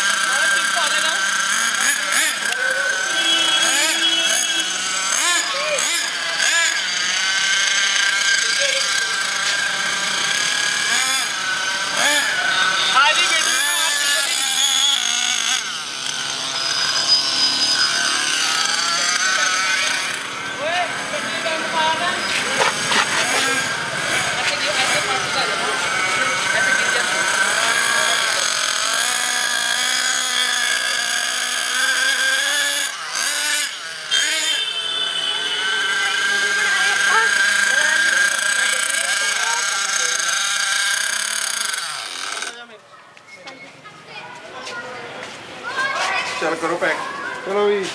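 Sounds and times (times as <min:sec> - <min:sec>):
small engine running high pitch: 0:00.0 - 0:42.8.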